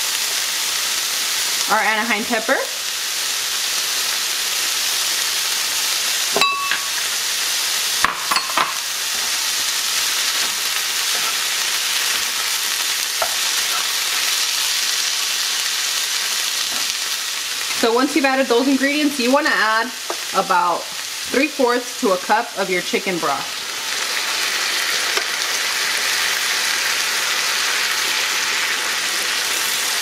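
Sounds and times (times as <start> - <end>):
food sizzling in skillet: 0.0 - 30.0
short ringing clink: 6.4 - 7.0.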